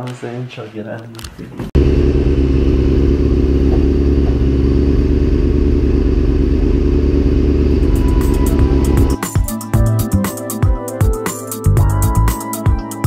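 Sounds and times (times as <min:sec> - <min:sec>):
motorcycle engine idling: 0:01.8 - 0:09.2.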